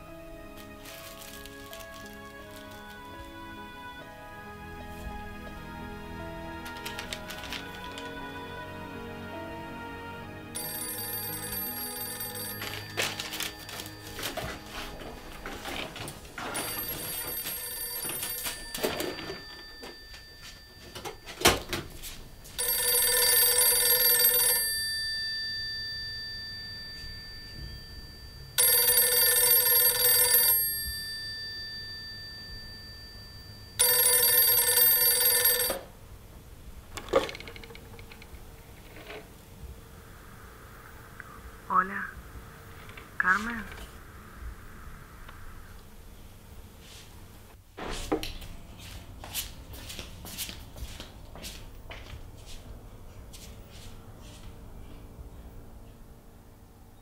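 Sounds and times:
paper crumpling: 0:00.5 - 0:03.1, 0:06.6 - 0:08.1, 0:12.6 - 0:16.2
telephone bell ringing: 0:10.6 - 0:36.0.

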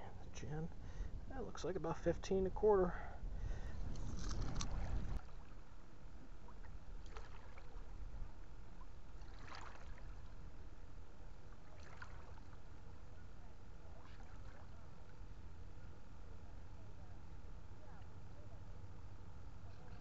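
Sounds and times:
low steady rumble: 0:00.0 - 0:20.0
lake water lapping: 0:06.4 - 0:10.5, 0:11.5 - 0:12.8, 0:13.9 - 0:14.9.

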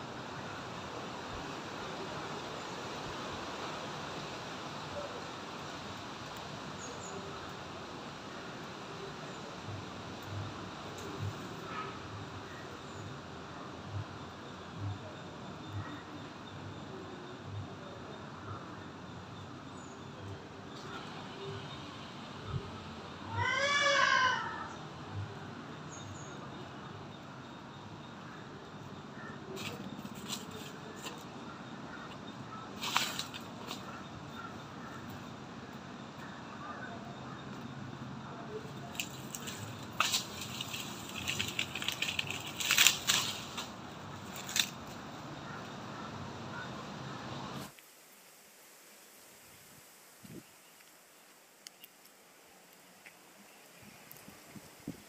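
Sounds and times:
faint steady background noise: 0:00.0 - 0:55.0
dry sticks snapping: 0:32.8 - 0:34.0, 0:38.8 - 0:45.0.

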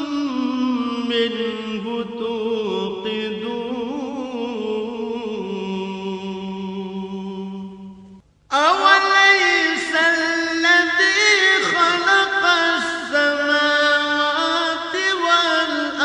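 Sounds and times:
man chanting melodically: 0:08.5 - 0:16.0.

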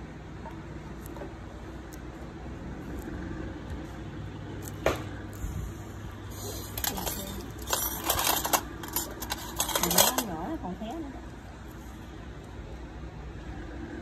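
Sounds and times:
steady low hum: 0:00.0 - 0:14.0
metal tools clicking and clinking: 0:06.7 - 0:10.5.

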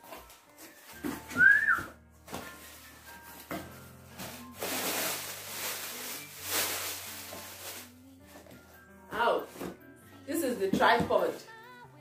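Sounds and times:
plastic packing rustling: 0:00.0 - 0:08.5.

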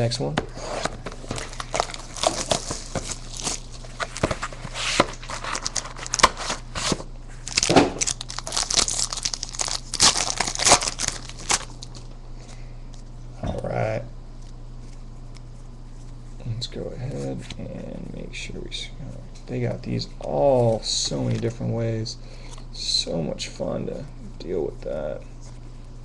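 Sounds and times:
plastic wrapper tearing and crinkling: 0:01.2 - 0:12.1.

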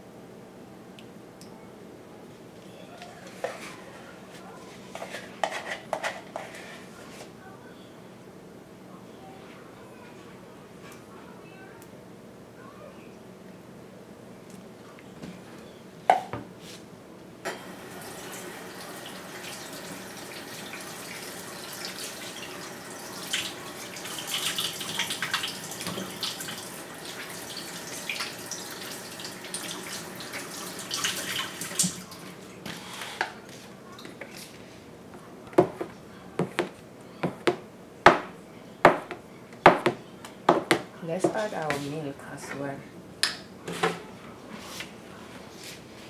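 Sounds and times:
tap water running into sink: 0:17.5 - 0:32.3.

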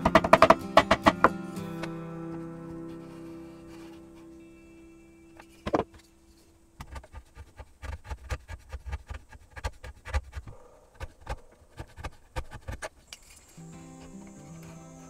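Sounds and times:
chisel cutting wood: 0:00.0 - 0:02.4.

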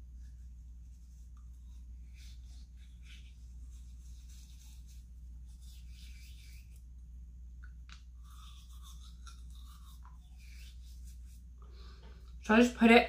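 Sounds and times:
toothbrush scrubbing teeth: 0:01.0 - 0:06.9, 0:07.6 - 0:11.6.

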